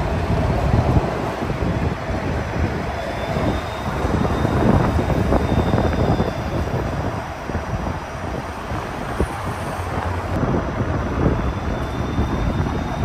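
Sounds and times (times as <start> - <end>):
street traffic: 0.0 - 13.0
streetcar wheels rumbling: 0.0 - 13.0
faint high whine: 2.6 - 9.9, 11.1 - 13.0.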